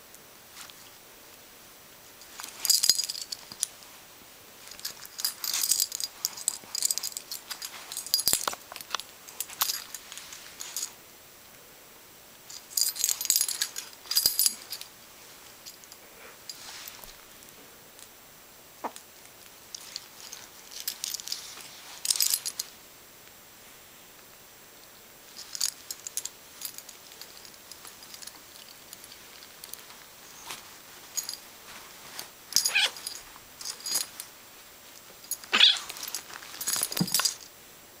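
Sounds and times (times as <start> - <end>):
dog collar jingling: 32.5 - 34.2, 35.2 - 37.5
short animal noises: 35.5 - 35.9.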